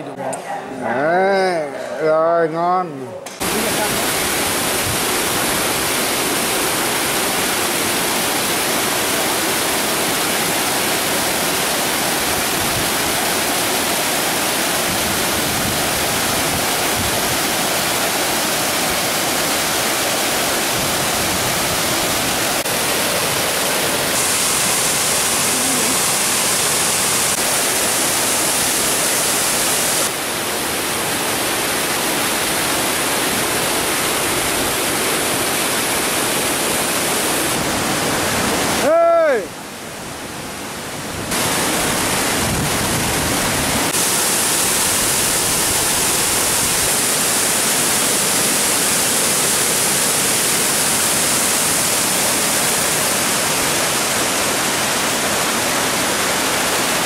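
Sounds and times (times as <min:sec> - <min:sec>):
fast-flowing stream rushing: 0:03.4 - 0:57.0.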